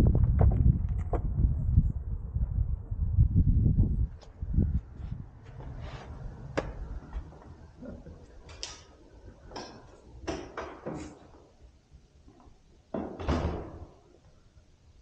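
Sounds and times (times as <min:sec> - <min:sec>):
low background rumble: 0:00.0 - 0:08.3.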